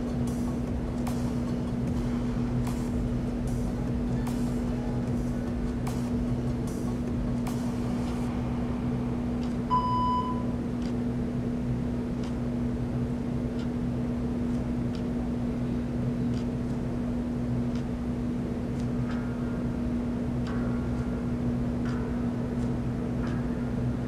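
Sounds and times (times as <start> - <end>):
low electrical hum: 0.0 - 24.0
short electronic beep: 9.7 - 10.5.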